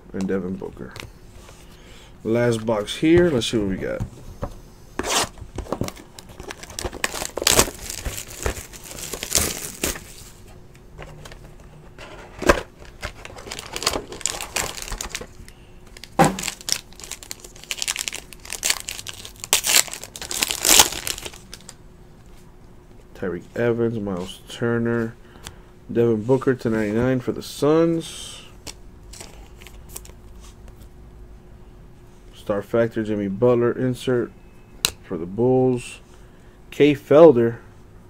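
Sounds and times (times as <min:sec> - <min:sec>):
cardboard rustling and scraping: 0:02.8 - 0:15.3
foil pack crinkling and tearing: 0:05.8 - 0:10.4, 0:12.4 - 0:21.8.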